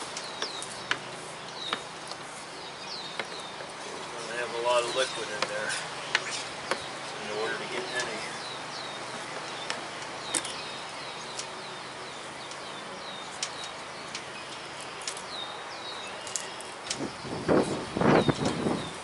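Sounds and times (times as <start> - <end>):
songbird chirping: 0.0 - 19.0
steady outdoor hiss: 0.0 - 19.0.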